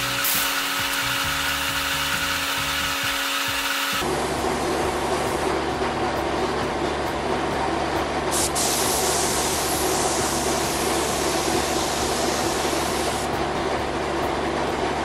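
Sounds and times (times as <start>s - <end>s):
paint spray gun hissing: 0.0s - 4.0s, 8.3s - 13.3s
mechanical drone: 0.0s - 8.3s.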